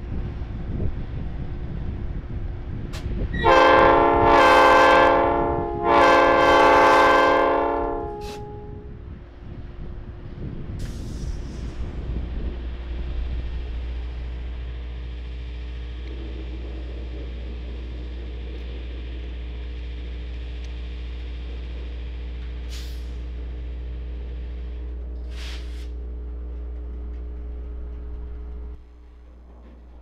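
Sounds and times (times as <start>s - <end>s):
electric locomotive humming: 0.0s - 30.0s
short air hisses: 10.8s - 12.0s, 22.7s - 23.2s, 25.2s - 26.0s.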